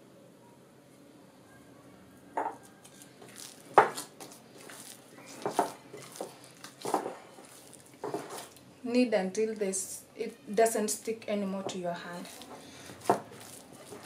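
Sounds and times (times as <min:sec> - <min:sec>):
glass bowl knocking: 0:02.4 - 0:02.6
sticky dough kneaded by hand: 0:02.6 - 0:08.6, 0:11.5 - 0:14.0.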